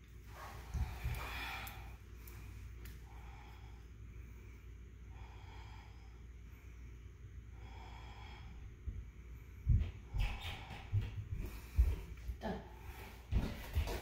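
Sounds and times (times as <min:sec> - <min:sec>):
person breathing through the nose: 0:00.4 - 0:06.9.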